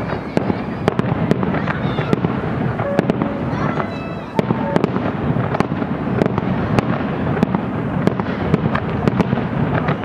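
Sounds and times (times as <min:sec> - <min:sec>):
fireworks bursting rapidly: 0:00.0 - 0:10.0.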